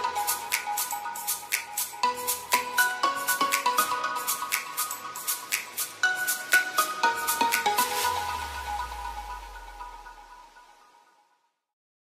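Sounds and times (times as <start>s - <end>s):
background music: 0.0s - 11.4s.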